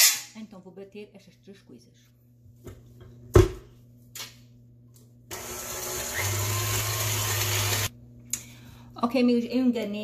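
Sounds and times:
stand mixer motor whirring: 0:05.3 - 0:07.9.

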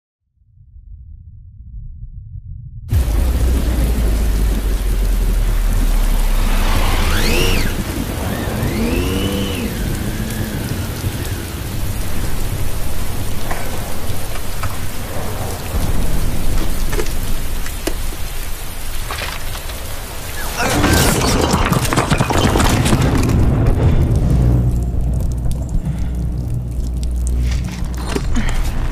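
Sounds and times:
thunder rumbling: 0:00.8 - 0:28.9
high wavering gliding sound: 0:02.9 - 0:11.0
heavy rain falling: 0:02.9 - 0:28.9.

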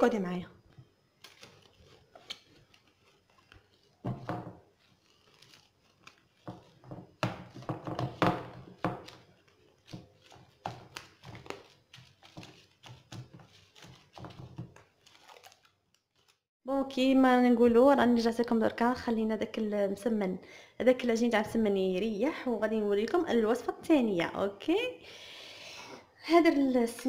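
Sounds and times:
cling film crinkling: 0:00.8 - 0:16.5.

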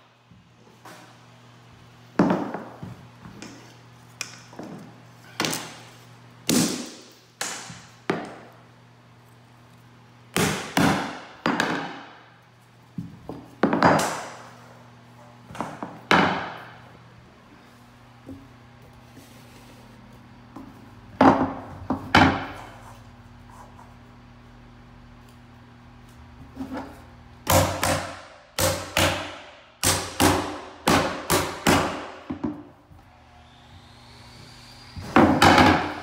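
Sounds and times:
hammer striking nails: 0:27.4 - 0:32.6, 0:35.1 - 0:36.0.

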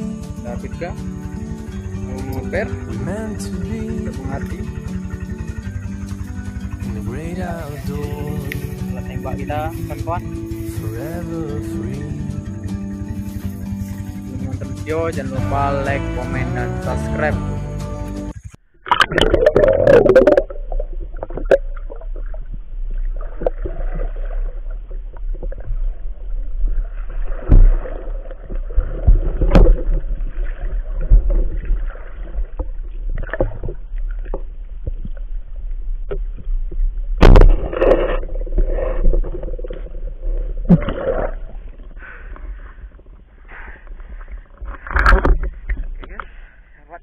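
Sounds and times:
low underwater rumble: 0:00.0 - 0:17.4, 0:18.0 - 0:46.8
underwater knocks: 0:27.4 - 0:35.4, 0:36.0 - 0:43.1, 0:44.6 - 0:46.3.

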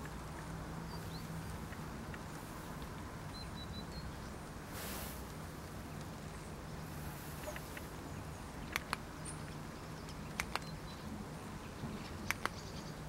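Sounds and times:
outdoor background noise: 0:00.0 - 0:13.0
flashlight switch clicks: 0:08.7 - 0:09.0.

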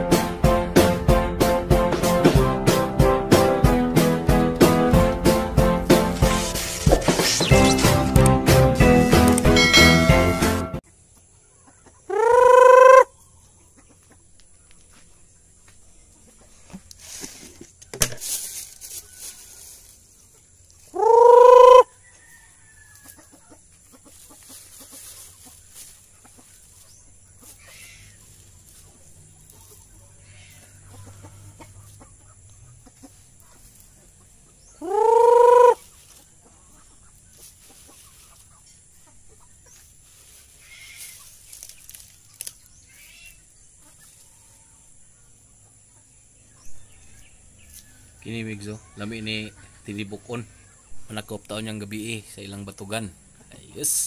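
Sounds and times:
chickens scratching: 0:05.8 - 0:09.7, 0:16.0 - 0:45.4
faint chicken clucks: 0:10.8 - 0:17.0, 0:17.6 - 0:51.2, 0:52.0 - 0:54.0
chicken calling: 0:11.4 - 0:14.2, 0:20.8 - 0:45.4.

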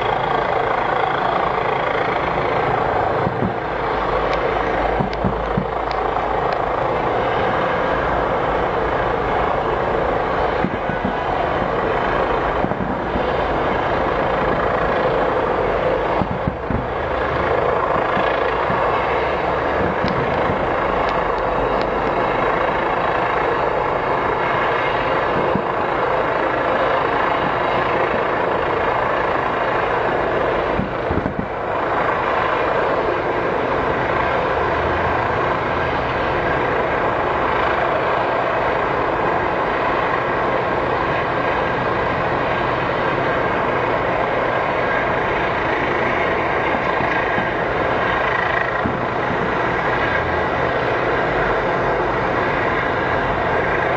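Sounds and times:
steady rushing noise: 0:00.0 - 0:53.9
distant fireworks bangs: 0:03.2 - 0:06.2, 0:10.6 - 0:11.8, 0:12.6 - 0:13.2, 0:16.1 - 0:17.2, 0:18.1 - 0:21.2, 0:25.3 - 0:25.8, 0:30.7 - 0:31.7, 0:48.6 - 0:49.8.

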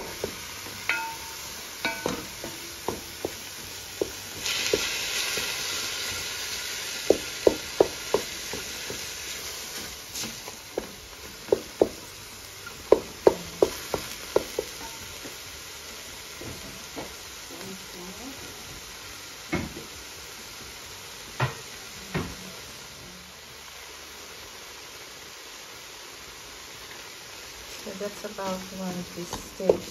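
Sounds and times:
wooden spoon tapping a pot: 0:00.0 - 0:05.5, 0:07.0 - 0:09.2, 0:10.7 - 0:12.1, 0:12.8 - 0:15.4, 0:29.2 - 0:29.9
meat and onion sizzling in a pot: 0:00.0 - 0:29.9.

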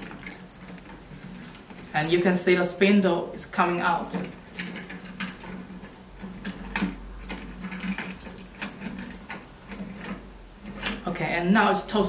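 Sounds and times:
keys jingling: 0:00.0 - 0:03.4, 0:04.5 - 0:10.2
metal lock clicking and rattling: 0:04.2 - 0:10.2.

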